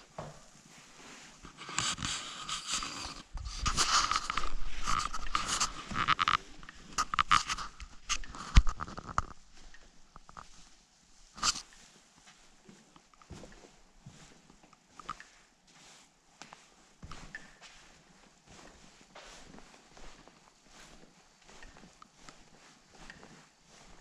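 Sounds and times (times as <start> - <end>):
footsteps: 0.0 - 24.0
camera handling rustle: 1.4 - 9.4.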